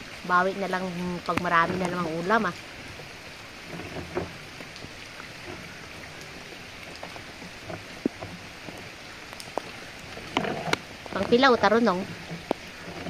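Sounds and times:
rain falling: 0.0 - 13.0
light knocks and taps: 3.7 - 11.4.

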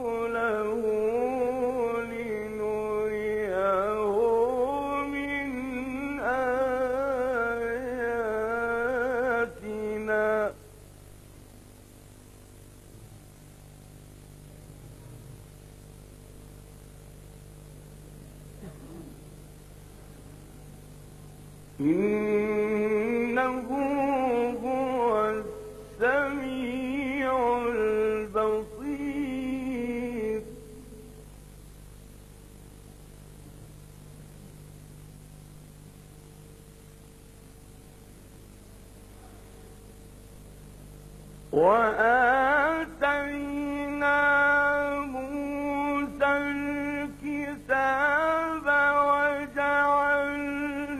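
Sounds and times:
man chanting: 0.0 - 10.6, 21.8 - 30.7, 41.5 - 50.9
faint hiss: 0.0 - 50.9
low electrical hum: 0.0 - 50.9.

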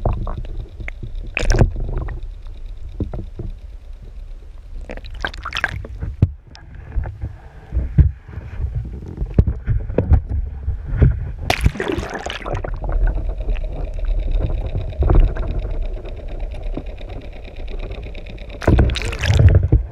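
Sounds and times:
low rumble: 0.0 - 19.9
sea water sloshing and rushing: 1.4 - 2.2, 4.9 - 5.9, 11.5 - 14.5, 18.6 - 19.9
loud water splash: 11.5 - 12.6, 18.6 - 19.5.

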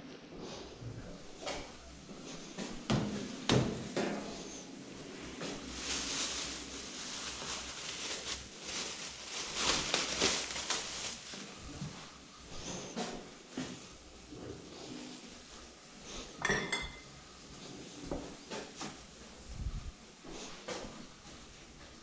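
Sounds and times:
packaging rustling: 5.4 - 11.8.

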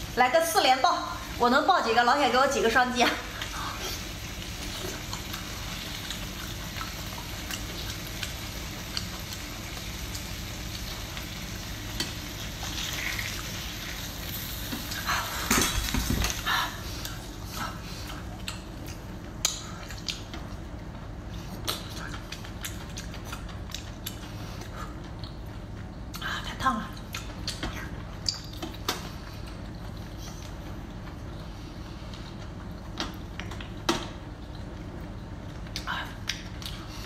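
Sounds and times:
wet chewing sounds: 17.0 - 20.6, 21.3 - 26.3.

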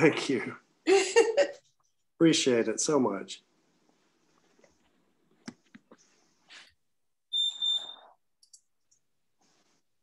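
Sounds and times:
high electronic beep: 7.3 - 8.1.

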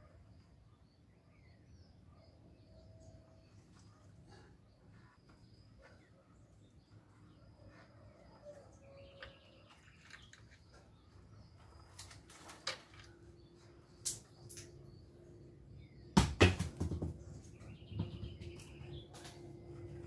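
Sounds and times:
faint bird chirps: 0.0 - 16.2
loud knocks: 16.2 - 17.3.

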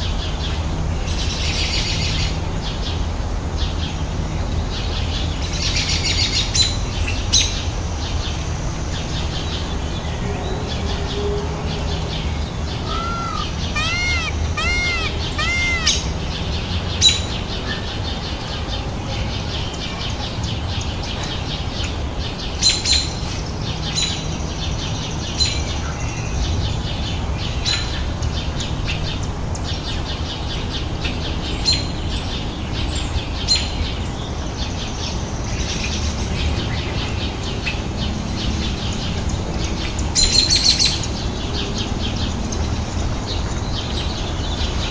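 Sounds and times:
high bird chirps: 12.8 - 16.1.

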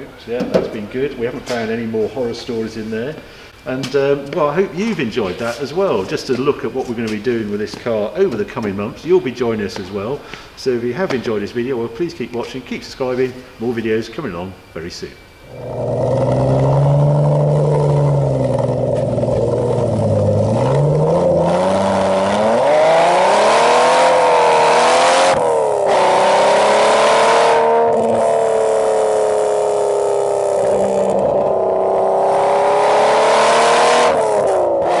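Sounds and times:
car engine accelerating: 15.4 - 35.0.

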